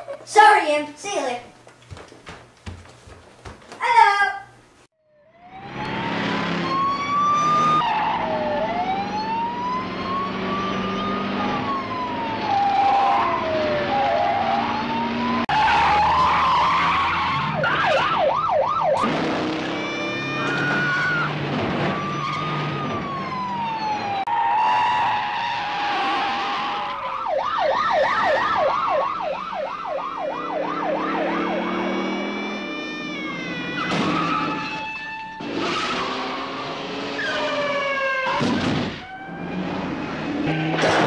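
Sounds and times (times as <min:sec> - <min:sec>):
police sirens wailing: 0:05.1 - 0:41.0
car engines running: 0:18.9 - 0:27.1.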